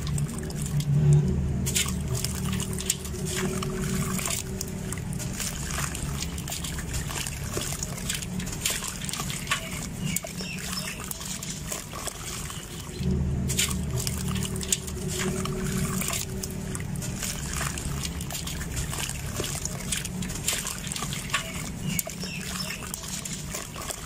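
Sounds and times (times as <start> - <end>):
grit pattering into water: 0.0 - 24.0
low steady hum: 0.0 - 24.0.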